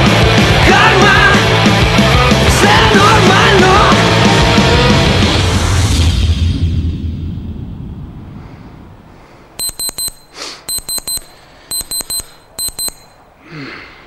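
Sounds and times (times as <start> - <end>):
music: 0.0 - 6.8
electronic alarm beeping: 9.6 - 13.2.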